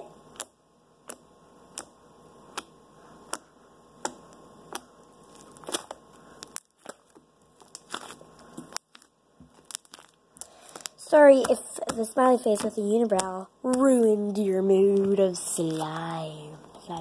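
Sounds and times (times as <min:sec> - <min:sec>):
slime sticky pops: 0:00.3 - 0:07.1.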